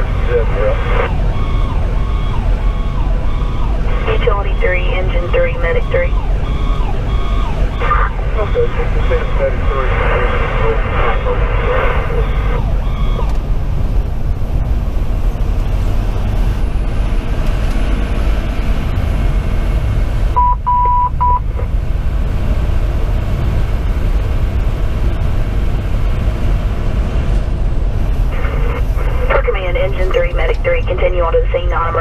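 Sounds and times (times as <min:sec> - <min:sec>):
engine and road rumble: 0:00.0 - 0:32.0
short high beeps: 0:20.4 - 0:21.4.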